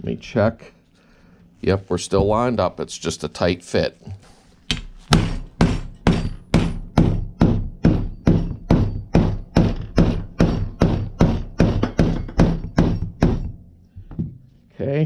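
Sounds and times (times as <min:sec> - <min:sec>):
hammer blows driving a pin: 0:04.7 - 0:14.2.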